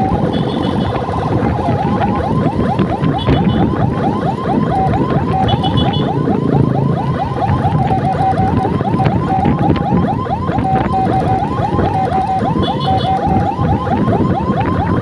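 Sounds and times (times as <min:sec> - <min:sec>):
scooter engine: 0:00.0 - 0:02.1
electronic siren yelping: 0:00.0 - 0:15.0
road noise: 0:00.0 - 0:15.0.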